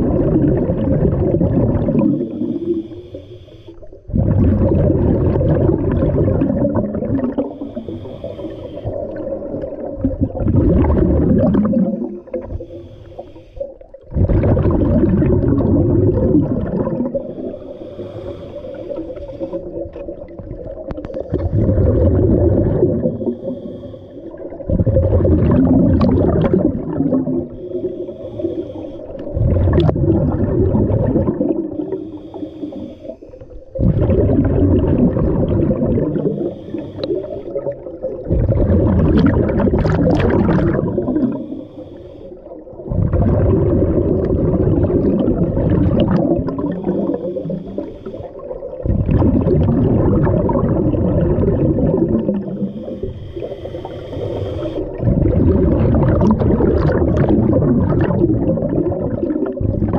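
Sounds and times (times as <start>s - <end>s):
bubbling exhalations underwater: 0.0s - 2.8s, 4.1s - 12.7s, 14.0s - 18.3s, 19.3s - 23.8s, 24.4s - 28.6s, 29.2s - 32.0s, 33.7s - 41.6s, 42.5s - 59.9s
regulator hiss: 52.6s - 54.9s.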